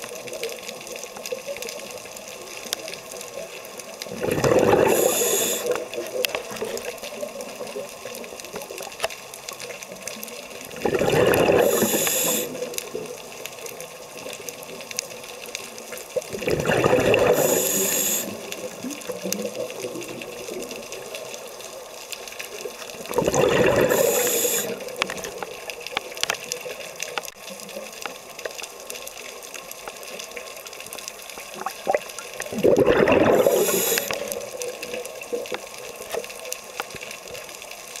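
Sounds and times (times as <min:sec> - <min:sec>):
faint crackle of clicks: 0:00.0 - 0:38.0
underwater breath bubbles: 0:04.1 - 0:06.8, 0:10.7 - 0:12.9, 0:16.3 - 0:19.2, 0:23.1 - 0:25.3, 0:31.6 - 0:34.7.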